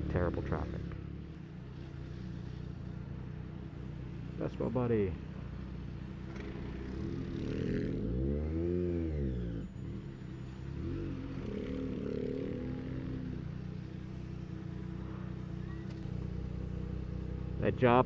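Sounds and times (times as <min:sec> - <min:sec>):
motorcycle engine revving: 0:06.0 - 0:18.0.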